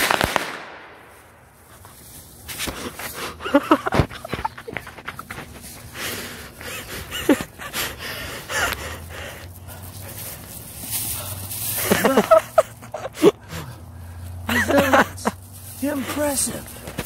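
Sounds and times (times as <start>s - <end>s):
firecrackers popping: 0.0s - 5.9s
person breathing hard: 2.6s - 3.6s, 5.4s - 12.0s, 13.0s - 14.4s.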